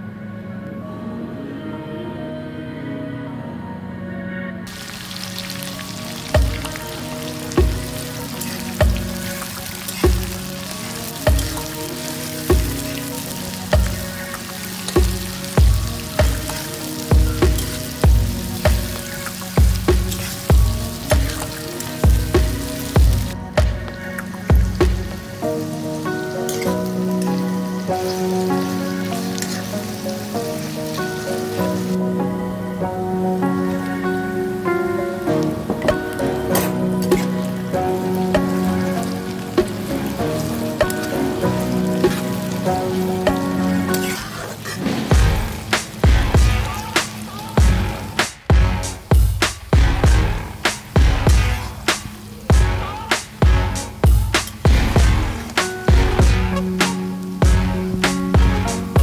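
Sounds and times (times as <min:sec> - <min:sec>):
background music: 0:00.0 - 0:59.0
onions sizzling in hot oil: 0:04.7 - 0:59.0
metal spatula stirring in pan: 0:43.7 - 0:46.0.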